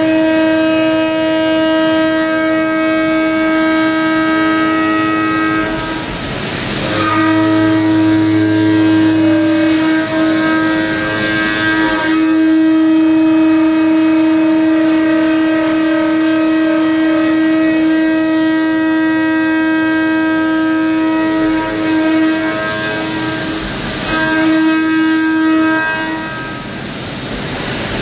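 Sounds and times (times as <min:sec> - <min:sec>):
hiss of metal cutting: 0:00.0 - 0:28.0
milling cutter whining: 0:04.5 - 0:19.3.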